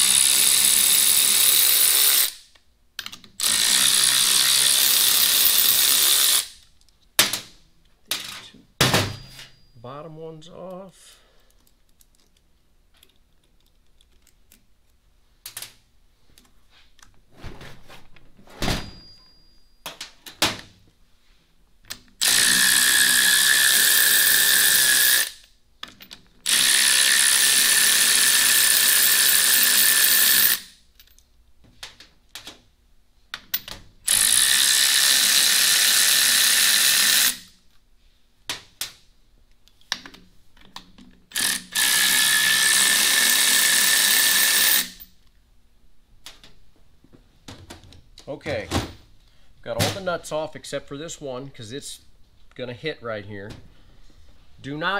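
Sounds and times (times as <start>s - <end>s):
electric ratchet whining: 3.4s - 6.6s, 22.2s - 25.4s, 26.4s - 30.8s, 34.1s - 37.6s, 41.3s - 45.1s
metallic clinks of tools: 18.8s - 19.9s.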